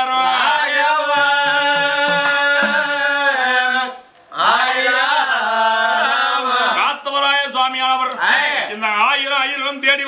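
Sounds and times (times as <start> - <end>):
man chanting a folk melody: 0.0 - 4.0, 6.0 - 10.0.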